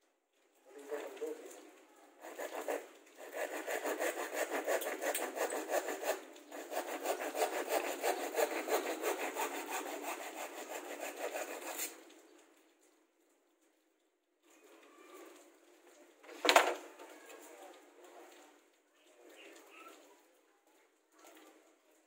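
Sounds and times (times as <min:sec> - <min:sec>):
hand saw cutting plywood: 0:02.2 - 0:12.0.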